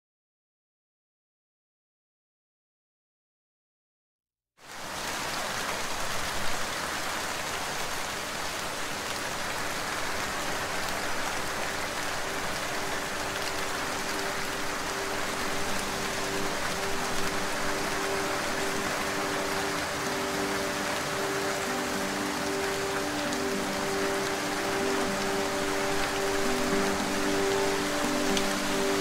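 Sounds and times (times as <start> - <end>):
steady rain falling: 4.6 - 29.0
soft low musical chord: 9.6 - 29.0.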